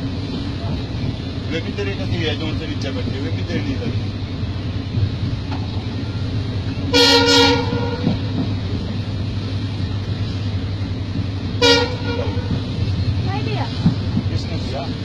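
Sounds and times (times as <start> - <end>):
train running rumble: 0.0 - 15.0
train horn blast: 6.9 - 8.4, 11.6 - 12.8.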